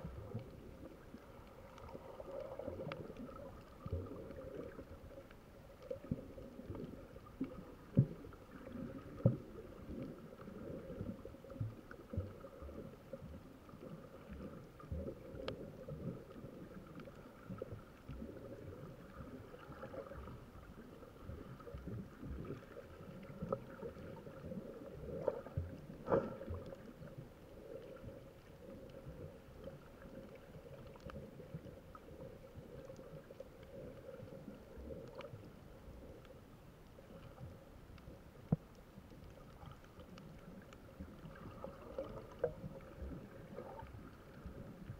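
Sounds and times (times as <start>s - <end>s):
water swishing underwater: 0.0s - 44.9s
underwater knocks and thumps: 5.9s - 13.4s, 21.2s - 27.2s.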